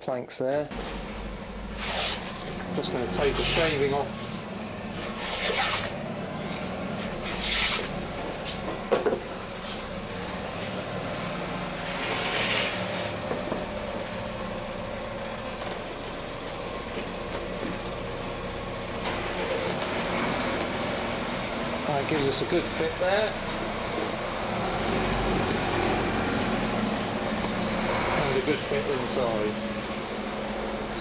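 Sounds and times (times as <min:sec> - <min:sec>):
steady low hum: 0:00.6 - 0:20.0
hand plane rasping on wood: 0:05.0 - 0:06.0.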